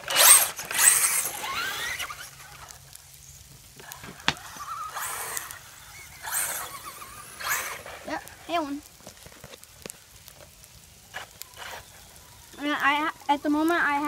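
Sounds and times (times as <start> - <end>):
rc truck motors whining: 0.0 - 9.6, 11.1 - 14.0
tyres on gravel: 0.0 - 14.0.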